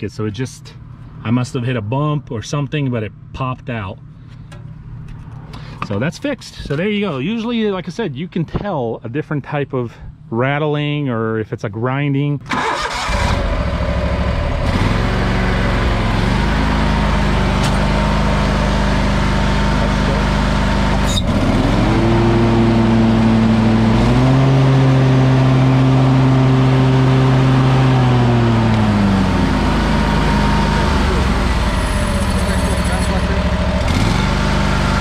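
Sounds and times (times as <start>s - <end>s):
mower engine revving: 12.5s - 35.0s.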